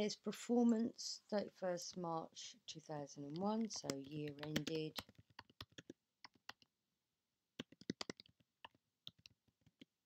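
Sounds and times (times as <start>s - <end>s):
keyboard typing: 3.3s - 6.7s, 7.6s - 10.0s.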